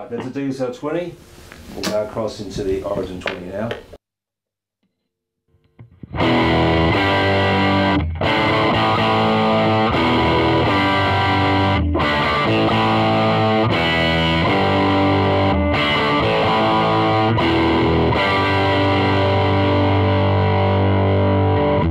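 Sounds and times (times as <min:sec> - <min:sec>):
overdriven electric guitar chords: 0:05.8 - 0:21.9.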